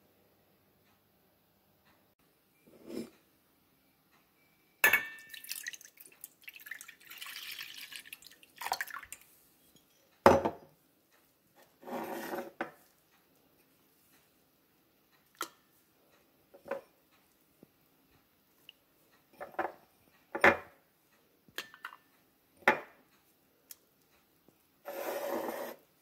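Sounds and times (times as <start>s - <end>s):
milk pouring into saucepan: 5.2s - 9.4s.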